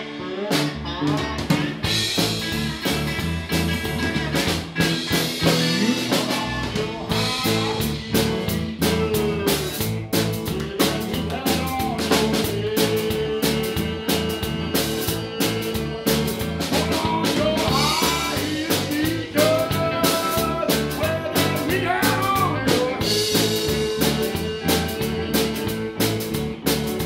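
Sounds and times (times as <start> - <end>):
live rock band playing: 0.0 - 27.0.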